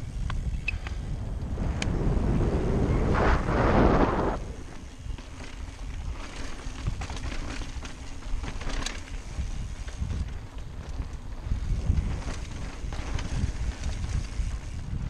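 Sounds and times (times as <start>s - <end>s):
wind on microphone: 0.0s - 5.6s, 9.2s - 15.0s
bike tyre rumble on rock: 0.0s - 15.0s
bike knocks and rattles: 4.8s - 15.0s.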